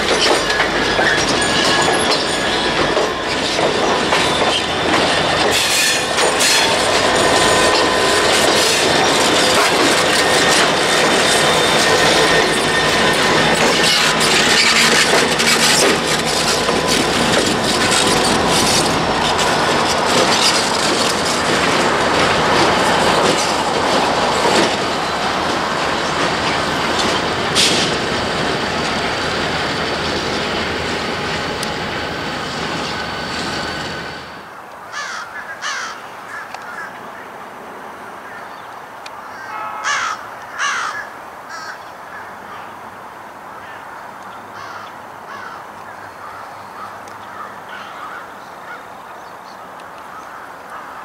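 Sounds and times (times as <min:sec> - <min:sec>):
diesel locomotive running: 0:00.0 - 0:34.6
crows cawing: 0:34.9 - 0:37.3, 0:38.2 - 0:38.5, 0:39.2 - 0:42.7, 0:43.6 - 0:44.0, 0:44.6 - 0:49.0, 0:50.1 - 0:51.0.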